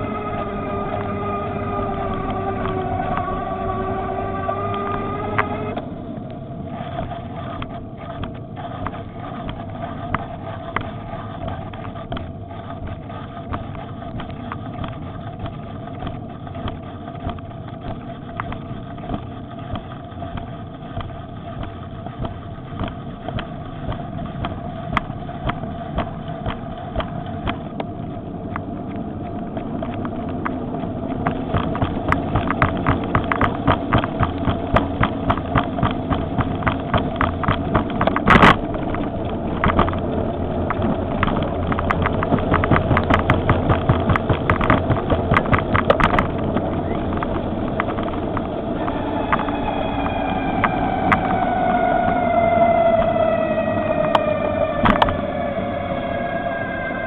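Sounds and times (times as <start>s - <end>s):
tyre and wind noise: 0.0s - 55.4s
electric motor whine: 0.0s - 57.0s
quick regular clicking: 6.8s - 48.6s.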